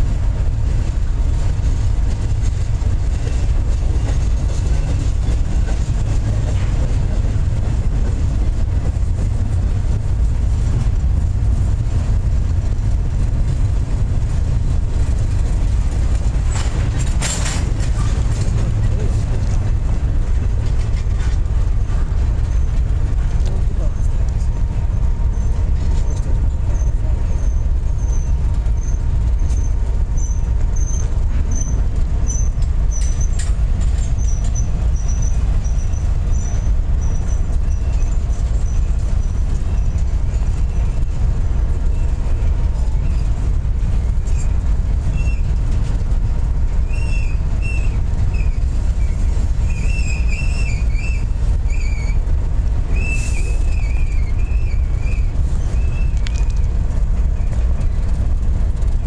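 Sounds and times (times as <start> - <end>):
train wheels rumbling on rail: 0.0 - 59.0
high-pitched wheel squeals: 25.3 - 33.4, 46.8 - 52.3, 52.9 - 56.6.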